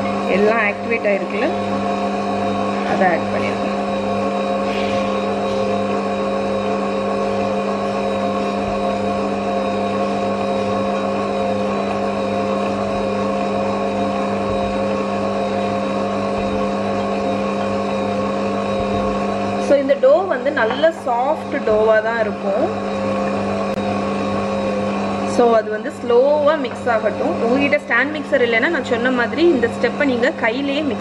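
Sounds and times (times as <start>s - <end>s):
stand mixer motor kneading dough: 0.0s - 31.0s.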